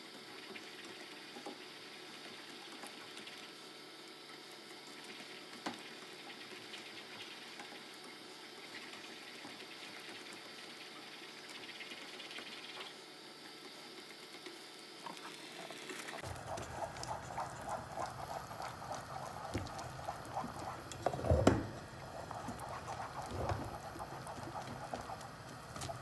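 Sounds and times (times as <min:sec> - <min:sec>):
whisk sloshing in pudding: 0:15.3 - 0:26.0.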